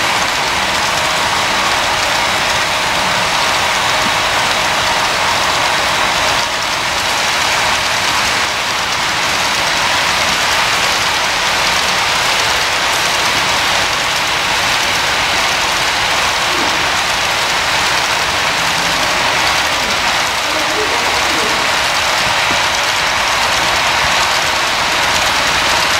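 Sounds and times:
model train rattling on rails: 0:00.0 - 0:25.9.

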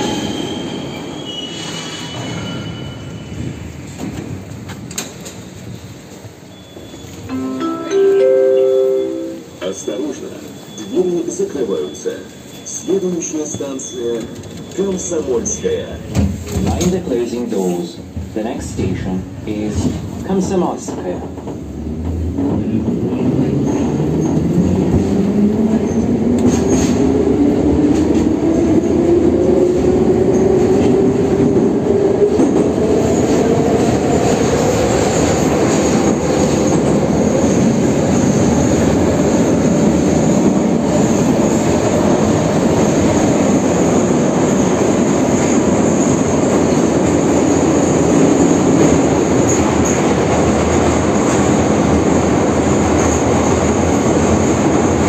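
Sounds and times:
train wheels rumbling on rail: 0:00.0 - 0:07.3, 0:13.4 - 0:55.0
thin high tone: 0:07.3 - 0:10.2.

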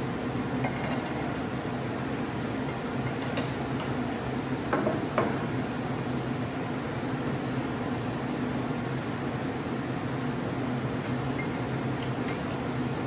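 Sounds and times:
shop machinery humming: 0:00.0 - 0:13.0.

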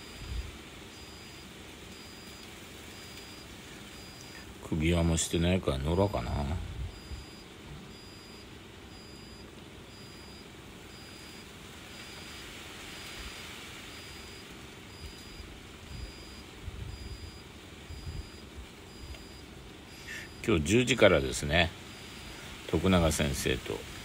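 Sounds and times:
high insect chirp: 0:00.0 - 0:04.4, 0:08.0 - 0:21.2, 0:21.9 - 0:22.5
soft steady hiss: 0:00.0 - 0:24.0.

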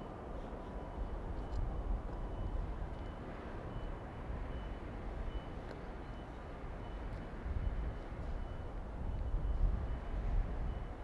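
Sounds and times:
faint high beep: 0:02.3 - 0:07.8, 0:08.4 - 0:11.0.

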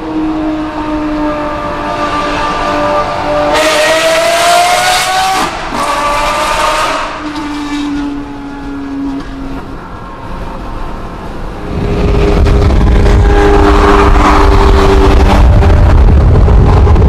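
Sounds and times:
sports car engine revving: 0:00.5 - 0:07.8.

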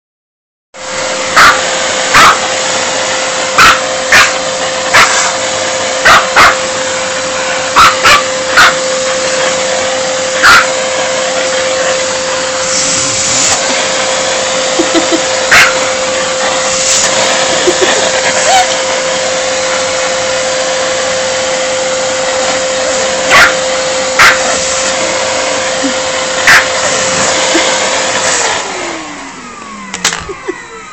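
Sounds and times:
vacuum cleaner whining: 0:00.8 - 0:30.9
small dog barking: 0:01.3 - 0:02.5, 0:03.6 - 0:05.4, 0:06.0 - 0:06.7, 0:07.7 - 0:08.8, 0:10.4 - 0:10.8, 0:15.5 - 0:16.0, 0:23.3 - 0:23.6, 0:24.2 - 0:24.6, 0:26.4 - 0:26.8.

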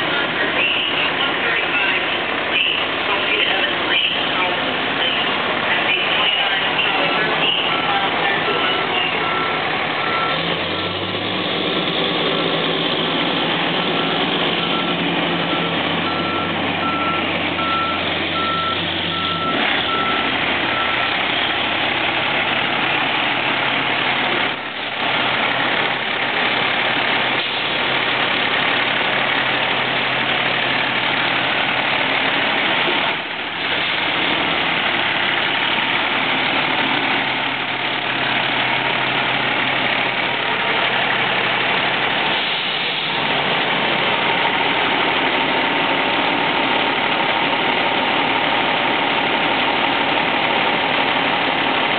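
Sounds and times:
truck engine running: 0:00.0 - 0:51.9
reversing alarm beeping: 0:06.0 - 0:10.5, 0:14.0 - 0:21.1.

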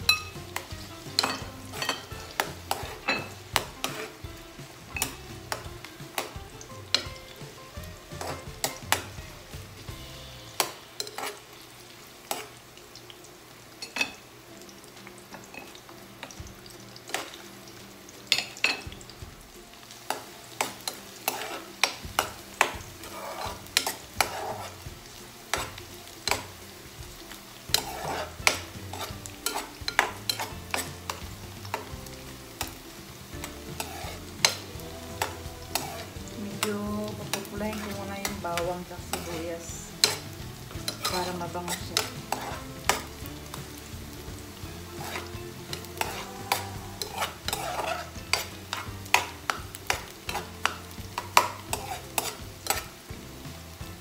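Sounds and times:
metal spoon scraping a pan: 0:00.0 - 0:09.2, 0:10.5 - 0:11.6, 0:12.2 - 0:12.6, 0:20.1 - 0:26.6, 0:27.6 - 0:53.1
light sizzle of frying: 0:00.0 - 0:54.0.

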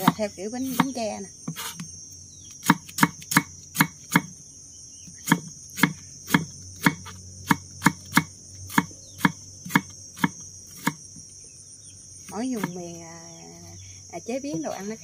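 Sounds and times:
insects buzzing: 0:00.0 - 0:15.0
knife chopping on wooden board: 0:02.6 - 0:04.3, 0:05.2 - 0:11.0.

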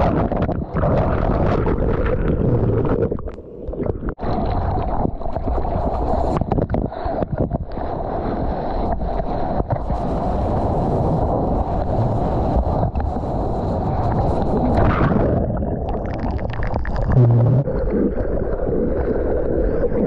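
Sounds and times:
whitewater washing and splashing: 0:04.2 - 0:20.0.

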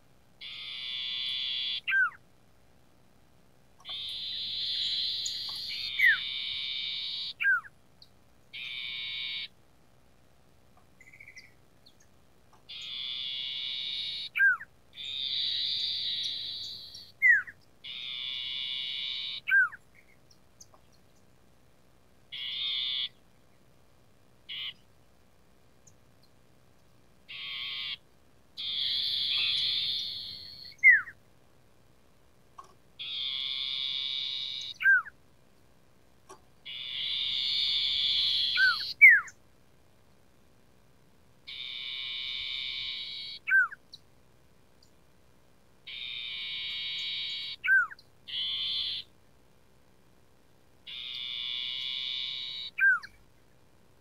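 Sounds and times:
bird buzzy trilling song: 0:00.4 - 0:02.2, 0:03.8 - 0:09.6, 0:11.0 - 0:21.3, 0:22.3 - 0:23.2, 0:24.4 - 0:24.9, 0:27.3 - 0:31.2, 0:32.6 - 0:35.2, 0:36.6 - 0:39.4, 0:41.5 - 0:44.0, 0:45.8 - 0:49.1, 0:50.8 - 0:53.2.

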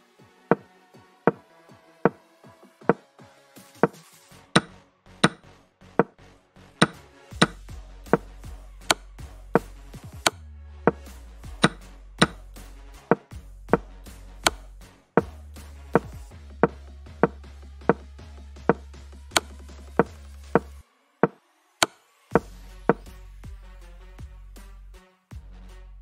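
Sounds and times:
background music with bass: 0:00.0 - 0:26.0
chess piece clicks: 0:06.8 - 0:07.6.

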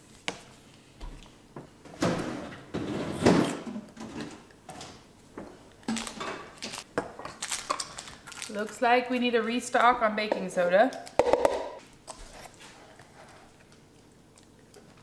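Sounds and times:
drawer sliding and rummaging: 0:02.0 - 0:04.4.

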